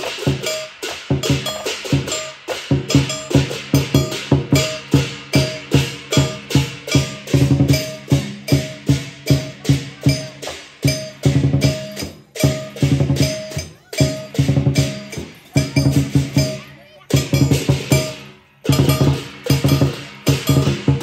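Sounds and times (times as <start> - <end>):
cymbals crashing: 0.0 - 21.0
drum beaten in driving rhythm: 0.0 - 21.0.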